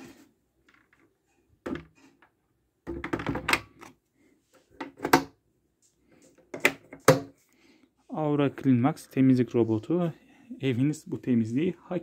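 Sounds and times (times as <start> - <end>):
plastic knocks and clicks: 0.6 - 4.0, 4.7 - 5.4.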